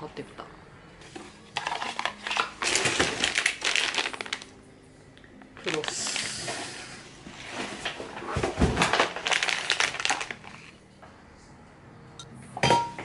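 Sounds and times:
plastic packets crinkling: 0:01.4 - 0:04.6, 0:05.5 - 0:10.8.

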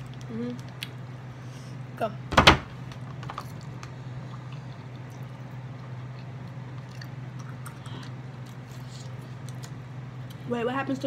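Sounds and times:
faint chewing: 0:00.0 - 0:01.0, 0:03.1 - 0:10.4
steady low hum: 0:00.0 - 0:11.0.

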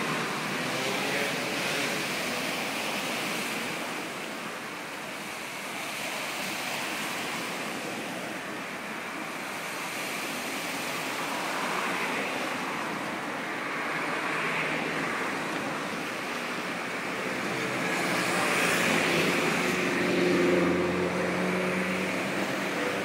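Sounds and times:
waves washing against rocks: 0:00.0 - 0:23.0.

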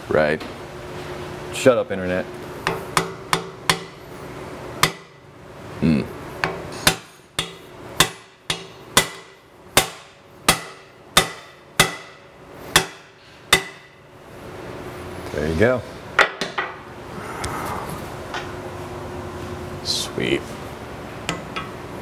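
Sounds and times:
hammer striking metal tool: 0:02.7 - 0:04.0, 0:04.8 - 0:05.2, 0:06.4 - 0:14.0.

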